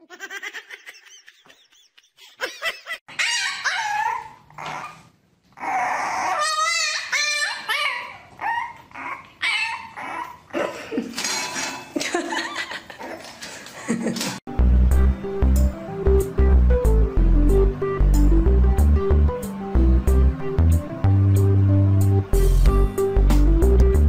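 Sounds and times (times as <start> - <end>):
puppy whining and yipping: 3.1 - 10.6.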